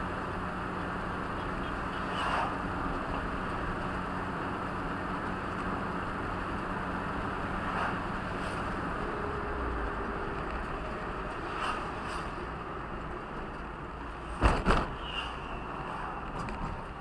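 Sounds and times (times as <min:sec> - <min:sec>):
vehicle road and engine noise: 0:00.0 - 0:17.0
passing car whooshing: 0:02.1 - 0:02.6, 0:07.5 - 0:08.8, 0:11.3 - 0:12.5.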